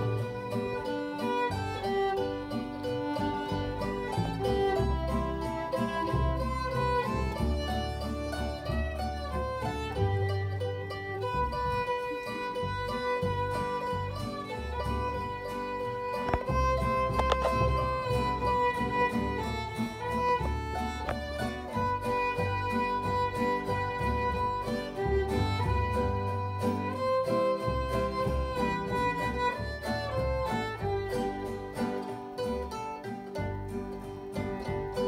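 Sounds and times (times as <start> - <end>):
acoustic guitar: 0.0 - 35.0
bowed fiddle melody: 0.0 - 35.0
plucked mandolin: 0.0 - 35.0.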